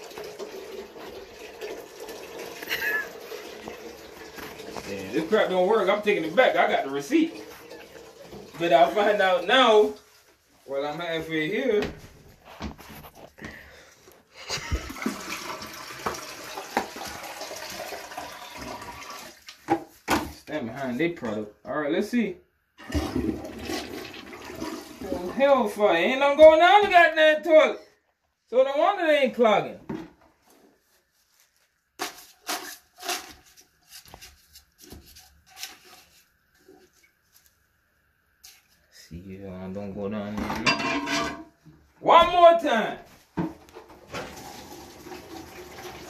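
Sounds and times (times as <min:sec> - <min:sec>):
water pouring into toilet tank: 0:00.0 - 0:10.2, 0:14.6 - 0:19.7, 0:22.8 - 0:26.1, 0:43.7 - 0:46.0
wet paper scraping and squishing: 0:30.4 - 0:37.6.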